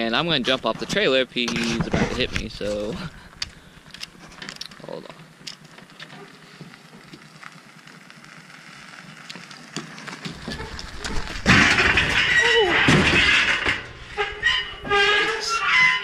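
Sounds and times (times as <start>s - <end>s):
car engine and tyre noise: 5.5s - 12.0s.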